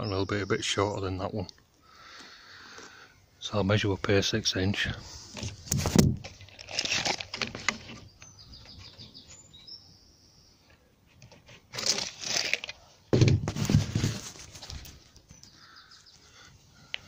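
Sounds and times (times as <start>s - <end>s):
bird chirping: 0.0s - 2.2s, 7.6s - 11.1s, 15.0s - 17.0s
scraping: 11.2s - 15.1s
knocks and thuds: 13.1s - 14.2s.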